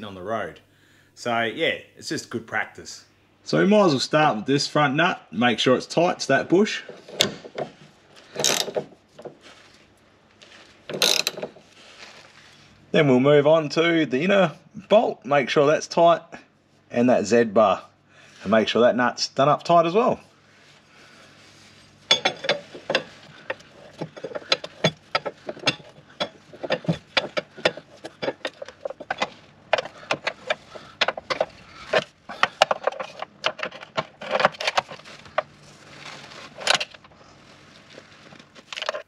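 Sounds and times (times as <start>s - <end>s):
metal tools clinking: 22.1s - 35.5s.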